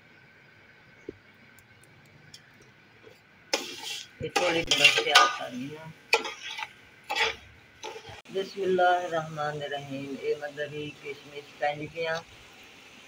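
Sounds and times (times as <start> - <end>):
faint background noise: 0.0 - 13.0
metal spoon scraping a pot: 3.5 - 8.3.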